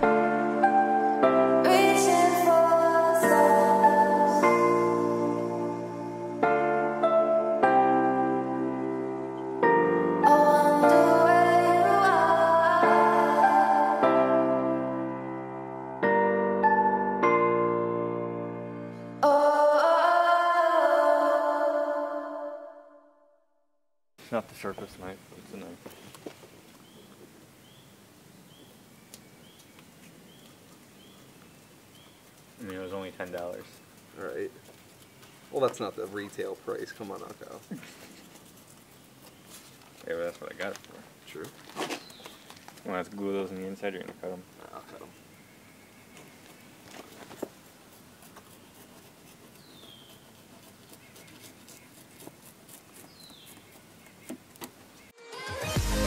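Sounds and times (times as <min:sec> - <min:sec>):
faint outdoor ambience: 0:00.0 - 0:22.7, 0:24.2 - 0:56.0
bird chirping: 0:24.5 - 0:40.2, 0:41.9 - 0:47.1, 0:49.5 - 0:55.2
small clicks from handling paper: 0:38.7 - 0:42.9.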